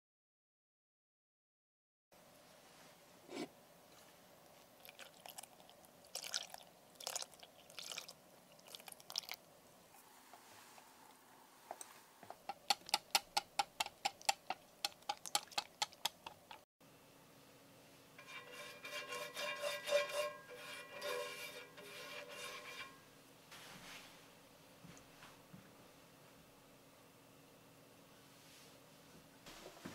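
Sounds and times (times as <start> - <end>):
pastry brush rubbing pan: 3.3 - 3.5, 18.2 - 24.1
whisk clicking in glass bowl: 12.5 - 16.3.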